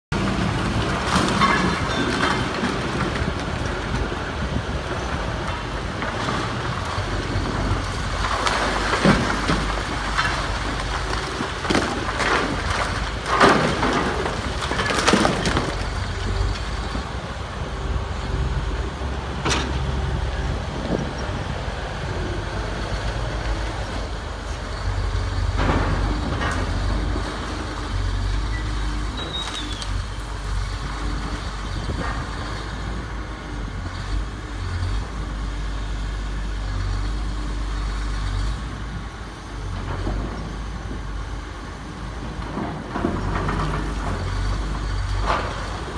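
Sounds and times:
excavator diesel engine running: 0.1 - 45.9
masonry and timber crashing: 6.0 - 16.8.

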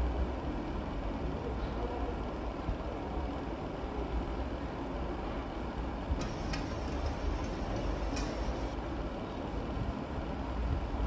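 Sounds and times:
plate being scrubbed: 6.2 - 8.7.

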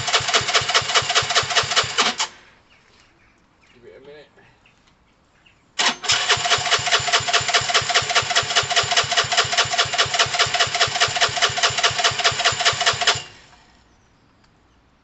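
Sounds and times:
engine cranking without starting: 0.0 - 2.4, 5.8 - 13.7
starter motor whine: 5.8 - 13.6.

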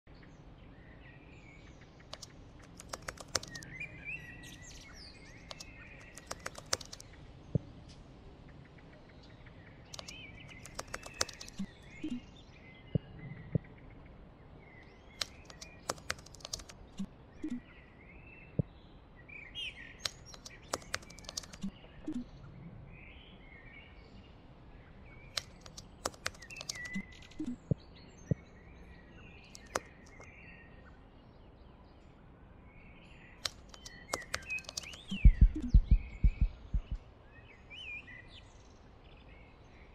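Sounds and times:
birds chirping: 0.1 - 39.9
sharp clicks: 2.1 - 3.7, 5.4 - 7.1, 9.9 - 12.2, 15.2 - 17.6, 20.0 - 22.2, 25.3 - 27.8, 29.5 - 30.3, 33.4 - 37.0.

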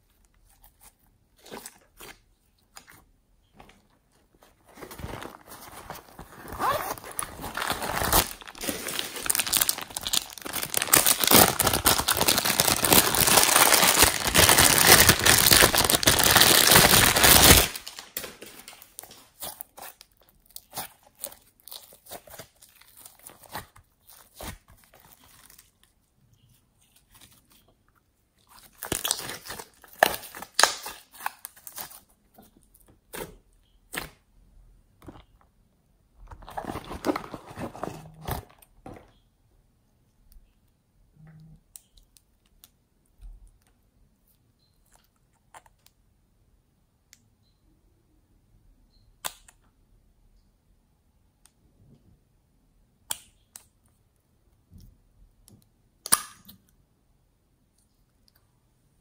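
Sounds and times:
plastic bag crinkling: 4.6 - 19.4.

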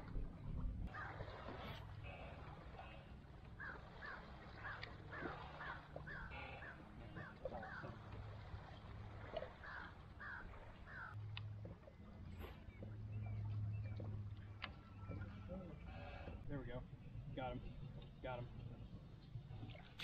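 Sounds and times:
bird calling: 0.9 - 8.3, 9.4 - 11.2, 14.7 - 16.8.

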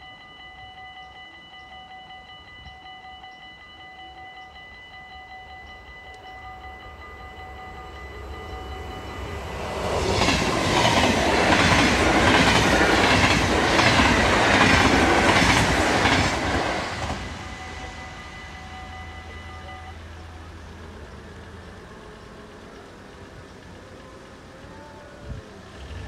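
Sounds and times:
crossing warning bell ringing: 0.0 - 26.0
train wheels clacking over rails: 7.5 - 19.8.

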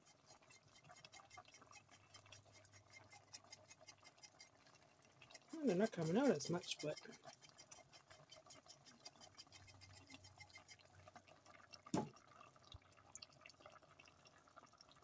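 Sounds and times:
stew bubbling in pot: 0.0 - 15.0
knock: 11.9 - 12.1.

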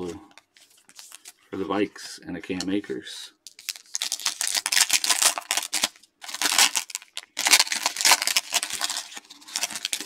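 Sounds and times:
foil wrapper crinkling and tearing: 3.6 - 10.0.

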